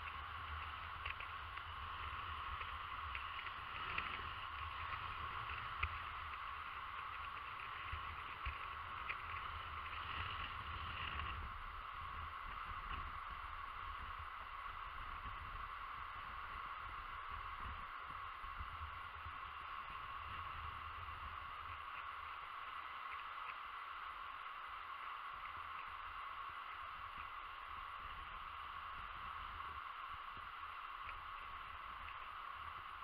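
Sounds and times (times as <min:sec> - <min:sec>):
wind rumbling on microphone: 0:00.0 - 0:23.6.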